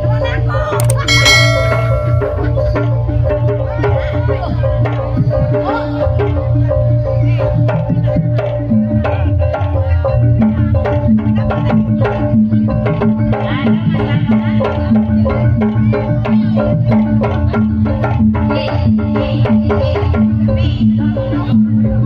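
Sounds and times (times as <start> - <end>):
tuned percussion: 0.8 - 2.9.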